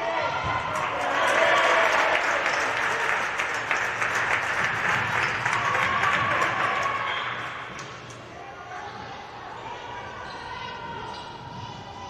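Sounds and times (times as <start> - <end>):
spectators clapping: 0.6 - 7.9.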